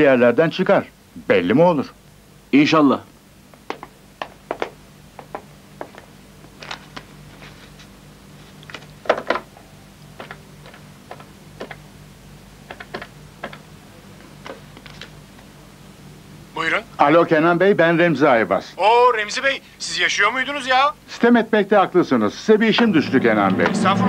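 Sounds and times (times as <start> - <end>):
faint steady hum: 0.0 - 24.0
paper rustling: 6.5 - 9.5, 14.2 - 15.2.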